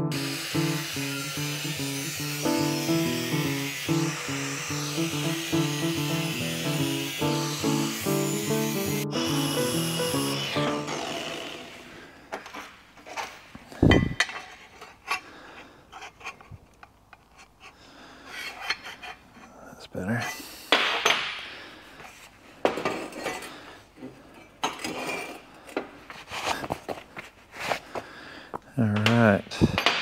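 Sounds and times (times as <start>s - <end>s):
metal pipes clinking and knocking: 13.9s - 14.8s.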